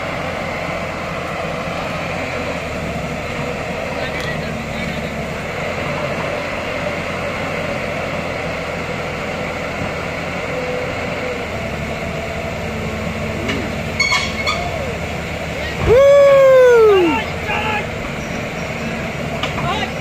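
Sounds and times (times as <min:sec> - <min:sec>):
excavator engine under load: 0:00.0 - 0:20.0.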